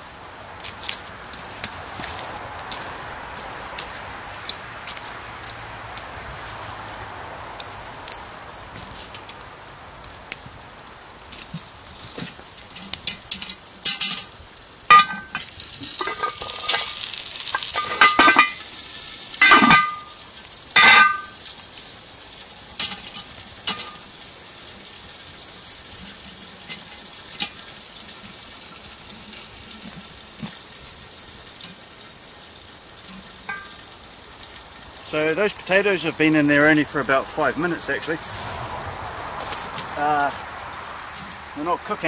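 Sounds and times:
potatoes sizzling in oil: 0:00.0 - 0:42.0
metal hook clanking on pot: 0:12.8 - 0:14.3, 0:14.9 - 0:18.7, 0:19.4 - 0:20.1, 0:20.8 - 0:21.4, 0:22.8 - 0:24.0, 0:33.5 - 0:33.8.

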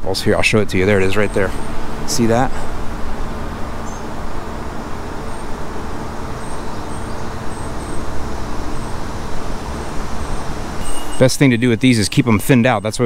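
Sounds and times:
city street traffic: 0:00.0 - 0:13.0
faint low hum: 0:00.0 - 0:13.0
faint high chirps: 0:03.6 - 0:13.0.

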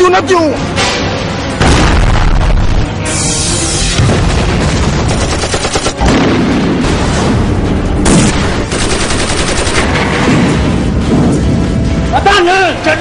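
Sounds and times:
automatic gunfire: 0:04.8 - 0:06.2, 0:08.0 - 0:10.2.

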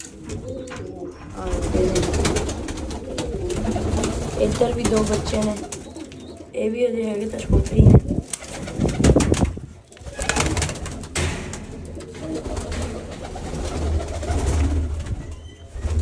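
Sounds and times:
pigeons cooing: 0:00.0 - 0:16.0
loud rustling noise: 0:07.4 - 0:16.0.

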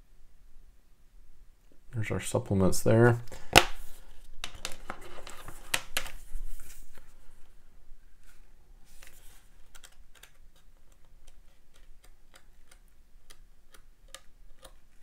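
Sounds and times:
pages flicking: 0:08.9 - 0:12.2.

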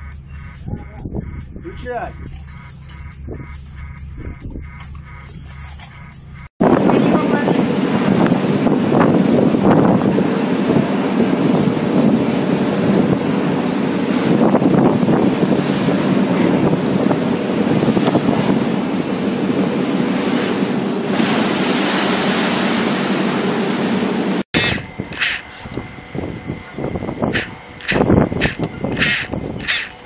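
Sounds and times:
trawler machinery drone: 0:00.0 - 0:30.0
wind buffeting microphone: 0:00.6 - 0:04.8, 0:06.6 - 0:21.9, 0:24.6 - 0:30.0
sea rushing: 0:06.6 - 0:25.6
churning water hiss: 0:06.8 - 0:25.5, 0:27.3 - 0:29.9.

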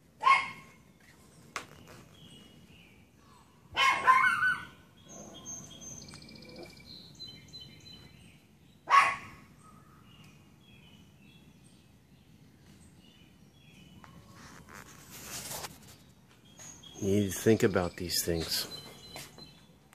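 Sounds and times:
small birds chirping: 0:00.0 - 0:19.9
dog barking: 0:00.2 - 0:00.7, 0:03.8 - 0:04.7, 0:08.9 - 0:09.4.

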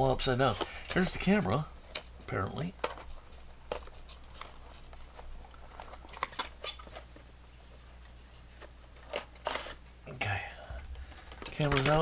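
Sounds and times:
steady low hum: 0:00.0 - 0:12.0
packaging clicks and rustles: 0:00.5 - 0:07.3, 0:10.9 - 0:12.0.

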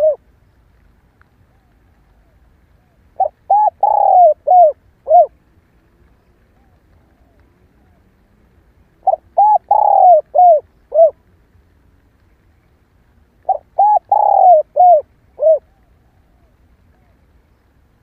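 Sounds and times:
dove cooing: 0:00.0 - 0:00.2, 0:01.5 - 0:05.4, 0:09.0 - 0:11.2, 0:13.4 - 0:17.3.

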